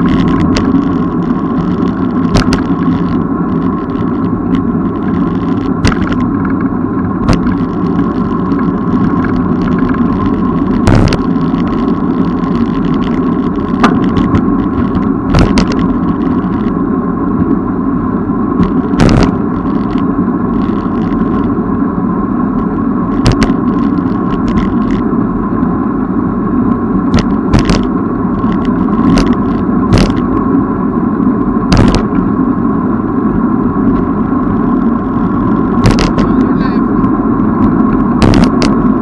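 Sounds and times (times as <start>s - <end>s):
bicycle clicks and rattles: 0.0s - 16.8s, 18.6s - 21.6s, 23.1s - 25.0s, 27.1s - 30.4s, 31.8s - 32.2s, 33.8s - 36.4s, 37.0s - 39.0s
wind buffeting microphone: 0.0s - 22.0s, 22.6s - 39.0s
road rumble: 0.0s - 39.0s.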